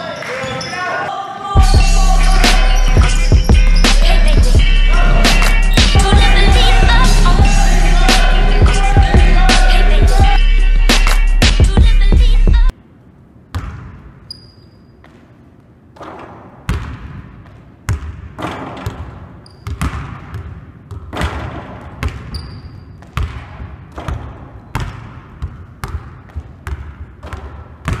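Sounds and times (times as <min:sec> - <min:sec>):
short high squeaks: 0:14.3 - 0:15.0.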